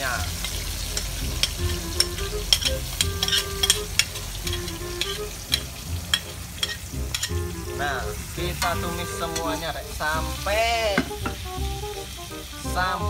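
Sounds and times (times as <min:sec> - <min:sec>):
oil sizzling: 0:00.0 - 0:13.0
metal spatula clinking on wok: 0:00.4 - 0:07.4.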